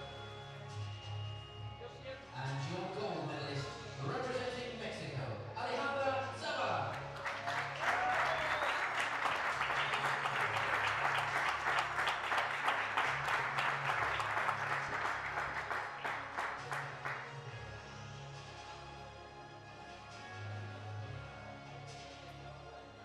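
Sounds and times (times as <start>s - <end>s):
audience applauding: 6.9s - 17.7s.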